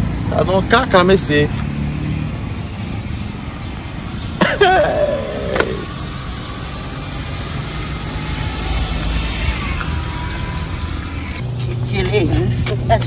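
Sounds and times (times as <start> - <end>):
man's drawn-out exclamation: 4.6 - 5.9.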